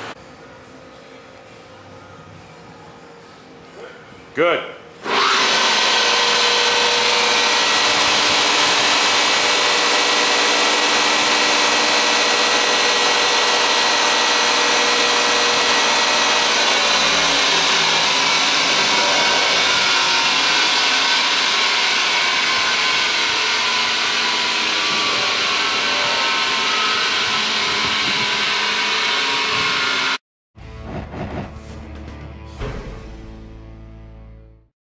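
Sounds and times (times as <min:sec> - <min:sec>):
mixer motor whirring: 0:05.0 - 0:30.2.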